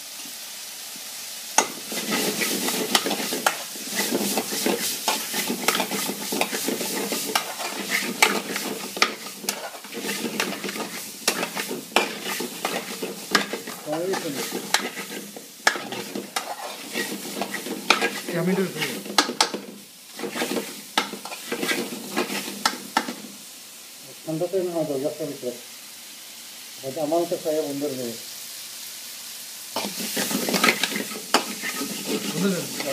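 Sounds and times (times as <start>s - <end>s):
curry sizzling in a frying pan: 0.0s - 32.9s
utensil clicking and scraping pan: 1.6s - 23.2s, 29.8s - 32.9s.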